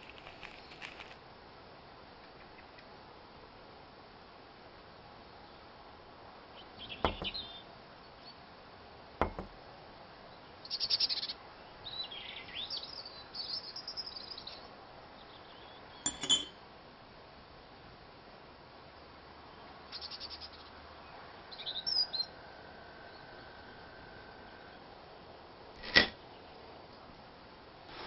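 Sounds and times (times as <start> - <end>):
plates knocking on table: 7.1 - 7.4, 9.2 - 9.6, 16.1 - 16.5
fork clinking on plate: 16.1 - 16.5
forks squeaking on plates: 16.1 - 16.5.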